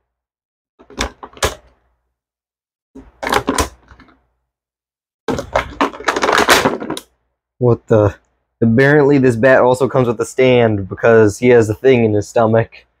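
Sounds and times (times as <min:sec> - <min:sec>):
plastic packaging crackling: 0:05.3 - 0:07.1.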